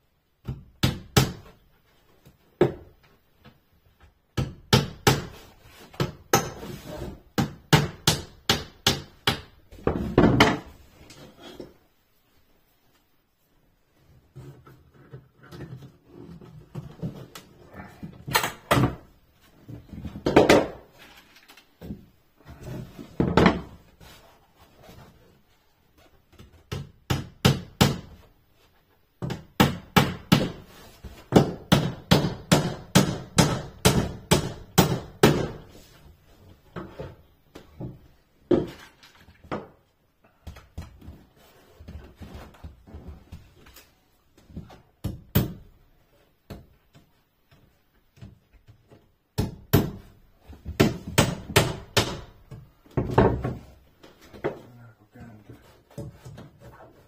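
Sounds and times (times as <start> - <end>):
hammer driving nails into wood: 31.3 - 35.6.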